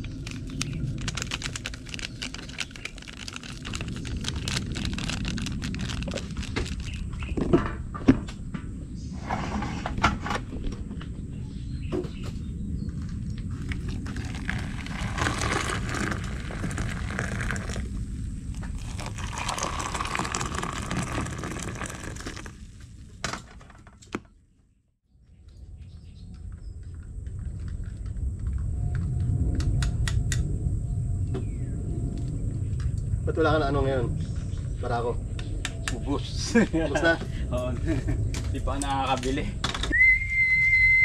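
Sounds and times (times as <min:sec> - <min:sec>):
steady low rumble: 0:00.0 - 0:09.2, 0:09.8 - 0:23.2, 0:25.2 - 0:40.6
water pouring into metal mug: 0:14.1 - 0:18.0, 0:18.6 - 0:22.6.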